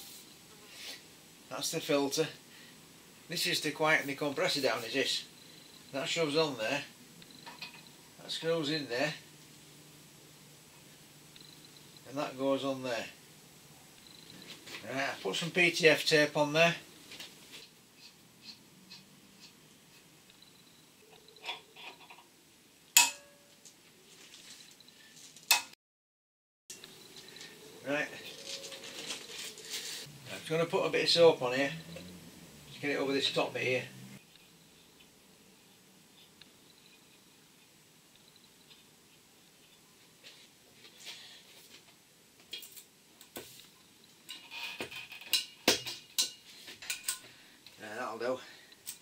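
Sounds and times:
rubber hose rubbing: 27.3 - 30.2.

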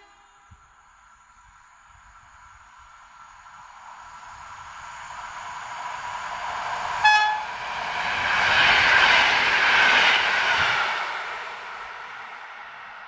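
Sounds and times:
electric train passing: 0.0 - 13.0
train horn toot: 7.0 - 7.5.

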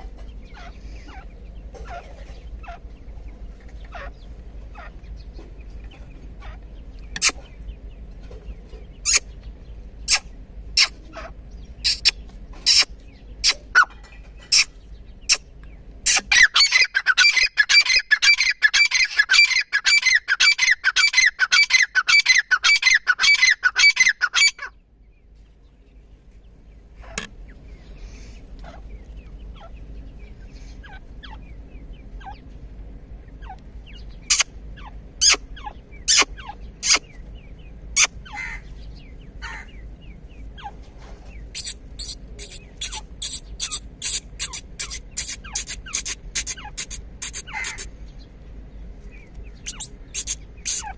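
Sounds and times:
francolins calling shrilly: 9.0 - 9.4, 10.0 - 13.9, 14.5 - 24.7, 33.3 - 40.8, 41.4 - 48.2, 49.1 - 50.9.

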